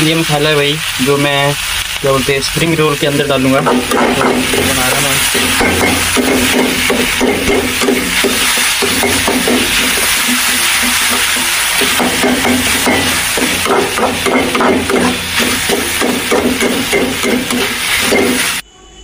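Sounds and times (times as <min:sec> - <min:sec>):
vegetables sizzling in a pan: 0:00.0 - 0:18.6
stirring knocks in pan: 0:03.6 - 0:18.6.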